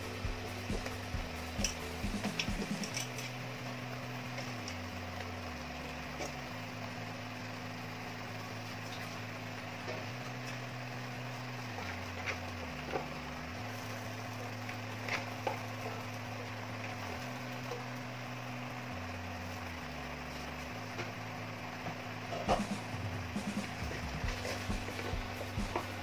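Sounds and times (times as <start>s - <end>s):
soft background music: 0.0s - 3.7s, 22.5s - 26.0s.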